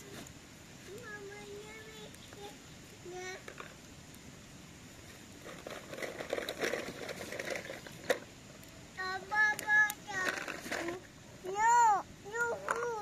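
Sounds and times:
soft crackling rustle: 0.0 - 13.0
child making high vocal sounds: 11.5 - 13.0.

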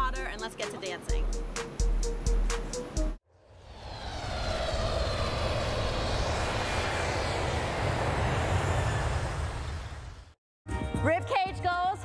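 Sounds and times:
aircraft engine-like rush: 3.3 - 10.4.

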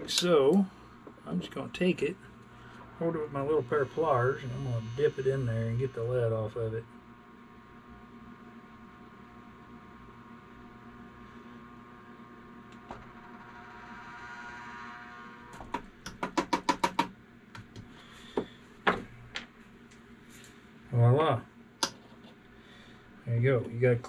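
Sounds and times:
electric melting pot hum: 0.0 - 24.0.

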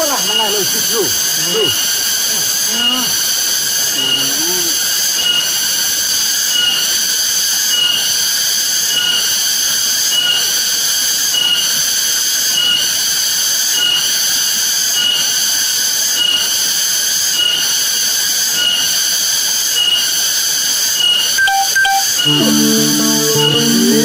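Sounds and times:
high-pitched electronic whine: 21.4 - 24.0
short electronic blips: 21.4 - 24.0.

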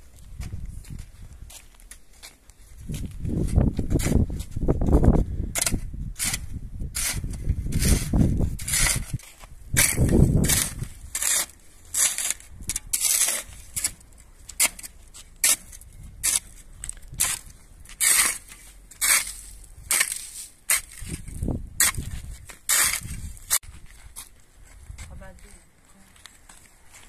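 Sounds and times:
spade scraping stony soil: 3.4 - 4.7, 5.5 - 24.3.

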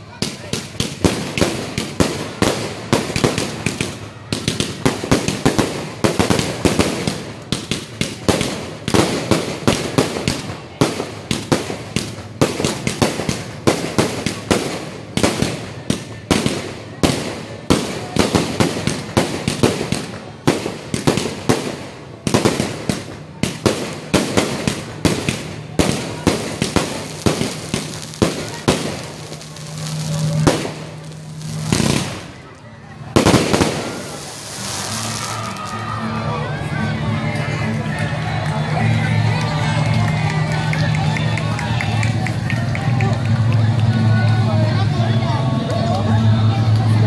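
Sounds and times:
fireworks bursting: 0.0 - 36.0.

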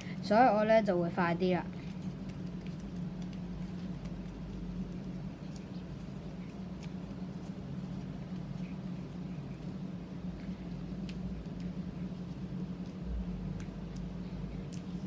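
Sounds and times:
steady low hum: 0.0 - 15.0
paper crinkling and creasing: 1.8 - 13.0.

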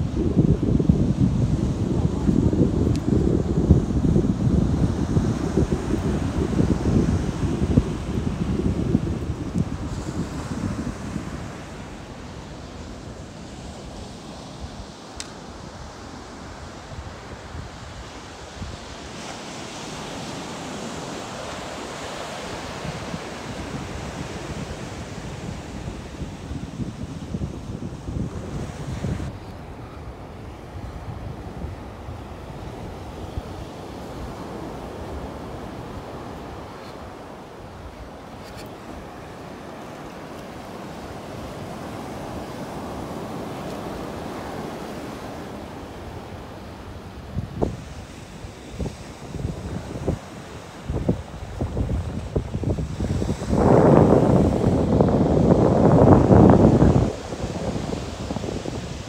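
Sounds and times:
wind buffeting microphone: 0.0 - 39.8, 40.5 - 59.0
ocean surf washing onto beach: 0.0 - 59.0.

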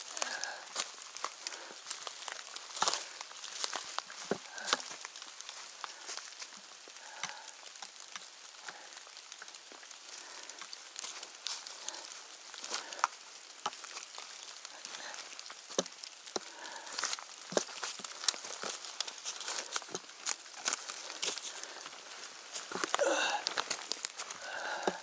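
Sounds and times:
footsteps through wet undergrowth: 0.0 - 25.0
rain pattering on foliage: 0.0 - 25.0.

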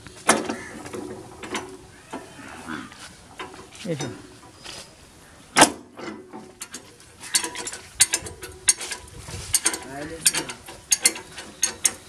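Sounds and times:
spanner clanking on metal: 0.2 - 2.3, 5.6 - 12.0
spanner clicking: 6.6 - 12.0.

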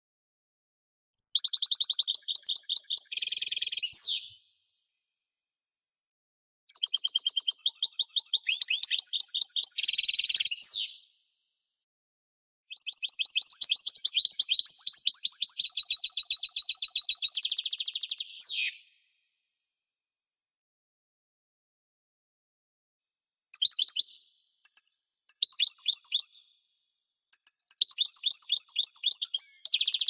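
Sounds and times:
finch twittering song: 1.4 - 4.4, 6.7 - 11.0, 12.7 - 19.0, 23.6 - 26.6, 27.3 - 30.0.

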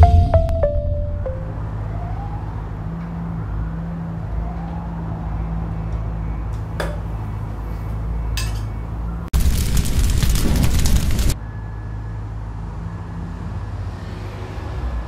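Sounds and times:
low steady drone: 0.0 - 2.4.

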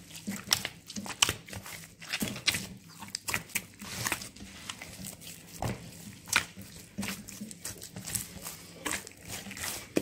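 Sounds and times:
hands squelching wet dough: 0.0 - 10.0.

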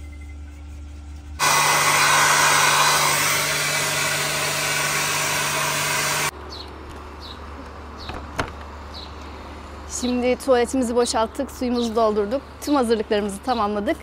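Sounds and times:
hair dryer blowing: 1.4 - 6.3.

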